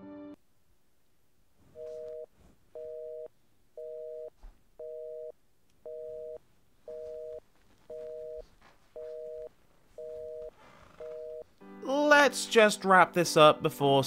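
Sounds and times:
telephone busy signal beeps: 1.8 - 5.3, 5.9 - 8.4, 9.0 - 11.4.

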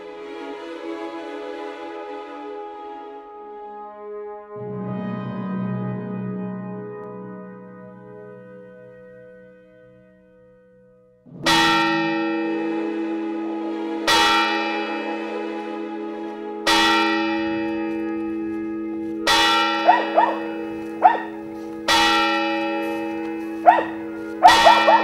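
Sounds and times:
large bell tolling: 4.6 - 9.2, 11.3 - 25.0
sharp yelping calls: 19.8 - 21.4, 23.6 - 25.0.

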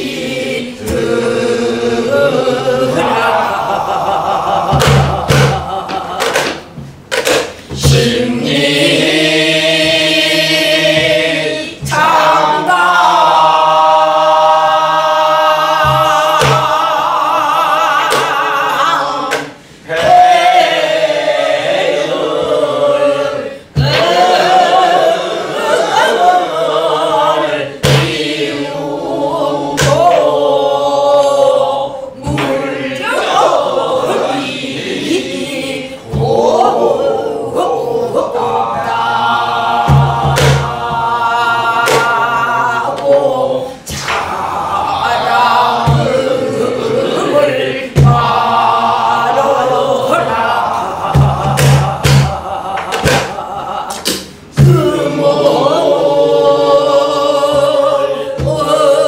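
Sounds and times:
group singing folk song: 0.0 - 59.0
barrel drum strokes: 39.8 - 41.1, 45.8 - 46.5, 47.9 - 48.4.

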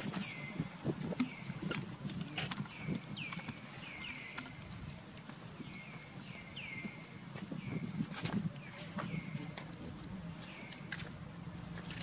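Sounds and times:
short chirping calls: 2.6 - 4.8, 5.6 - 8.0.

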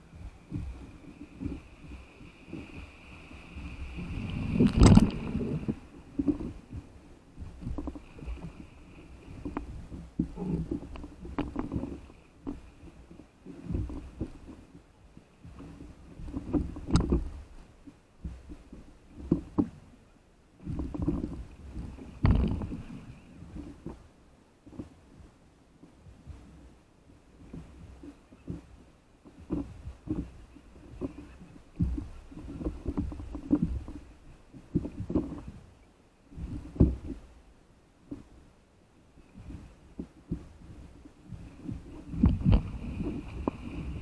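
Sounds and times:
water slapping against paddle board: 0.4 - 14.6, 20.6 - 24.0, 39.3 - 44.0
water splash: 3.5 - 5.8.

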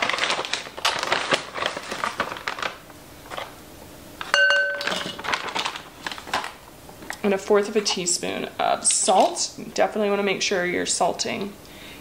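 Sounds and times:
sharp ringing clink: 4.3 - 5.2.

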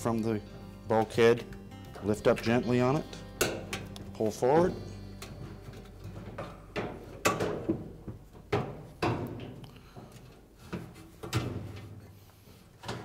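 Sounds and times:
sheet metal clunks and knocks: 6.1 - 9.6, 10.8 - 12.0.

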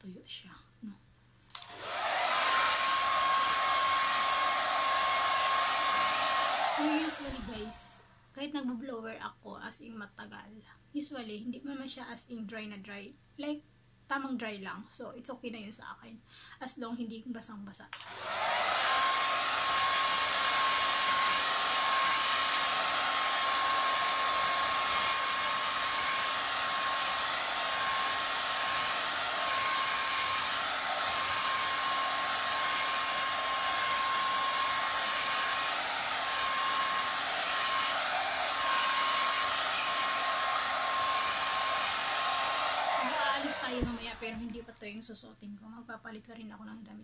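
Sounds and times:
hair dryer running: 1.5 - 8.0, 18.0 - 44.7.

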